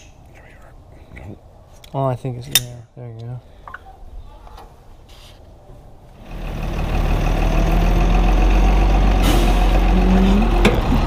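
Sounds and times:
diesel truck engine rumbling: 6.2 - 11.0.

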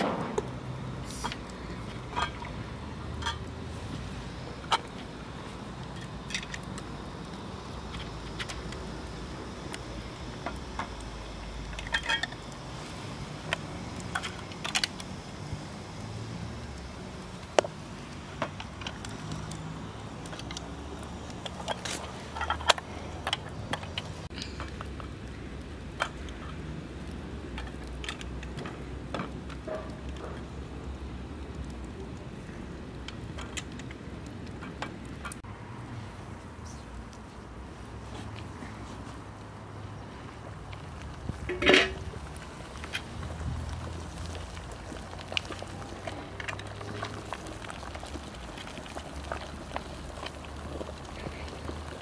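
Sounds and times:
metal tongs clinking on glass jars: 11.8 - 12.4.

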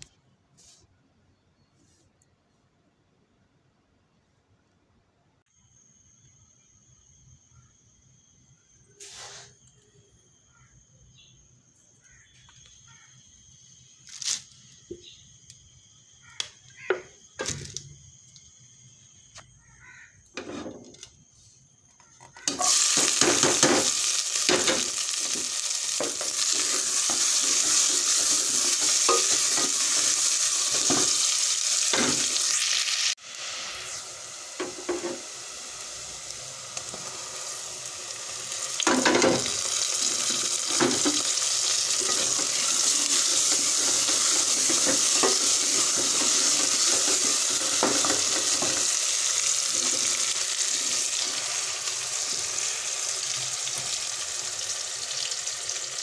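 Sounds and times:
onions sizzling in hot oil: 22.5 - 56.0.

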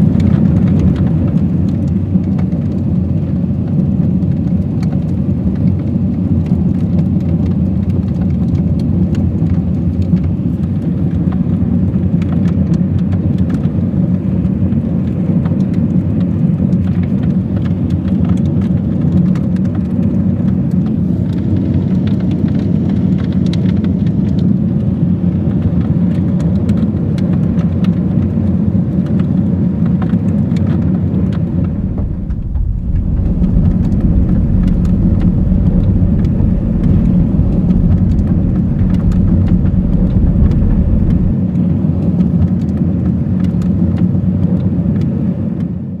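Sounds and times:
tyre and road rumble: 30.6 - 41.4.

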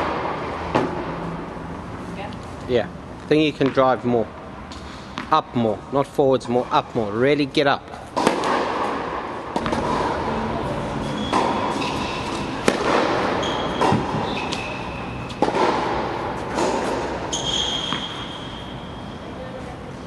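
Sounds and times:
tennis ball struck and bouncing: 0.0 - 1.2, 4.7 - 5.4, 7.9 - 18.7
tennis shoes squeaking: 9.6 - 19.9.

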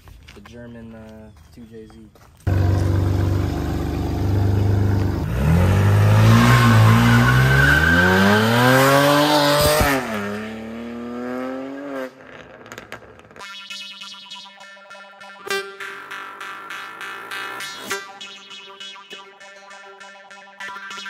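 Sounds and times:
car engine idling and revving: 2.5 - 13.2.

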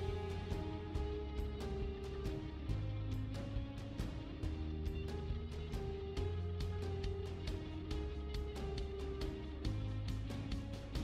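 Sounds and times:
music with steady beat: 0.0 - 11.0.

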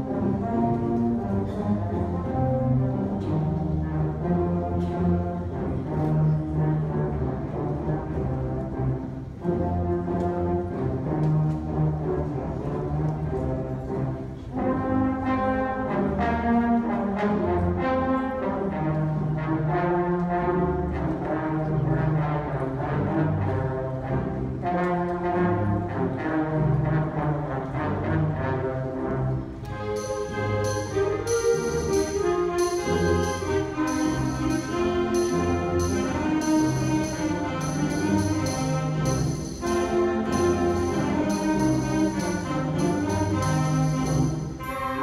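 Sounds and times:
concert band playing: 29.7 - 45.0.

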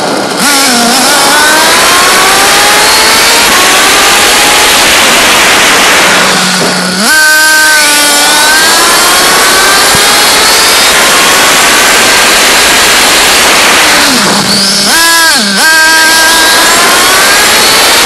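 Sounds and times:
car engine revving high: 0.0 - 18.0
rushing noise: 0.0 - 18.0.

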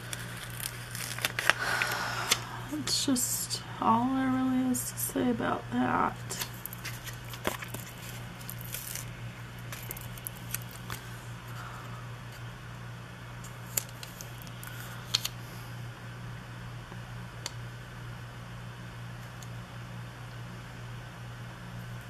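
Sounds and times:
paper and stickers rustling: 0.0 - 1.9, 6.3 - 9.1, 9.7 - 11.2
steady low hum: 0.0 - 22.0.

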